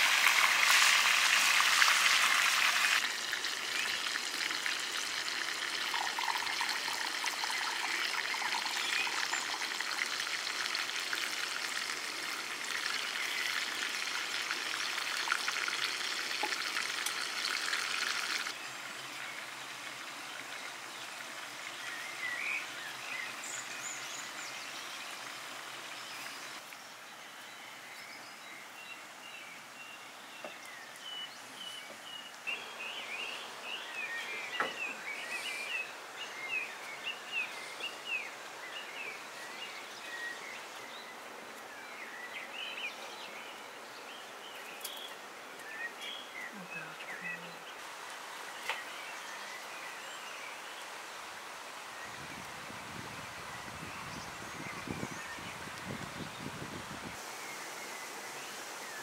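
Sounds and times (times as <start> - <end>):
steady outdoor hiss: 0.0 - 59.0
small birds chirping: 5.9 - 10.0, 12.7 - 51.0.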